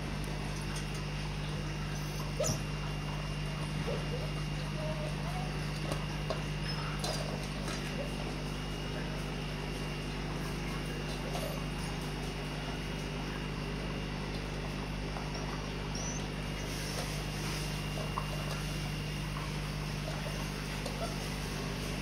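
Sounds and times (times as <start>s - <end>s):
puppies chewing kibble: 0.0s - 22.0s
steady low hum: 0.0s - 22.0s
kibble clicking in bowls: 3.8s - 8.2s.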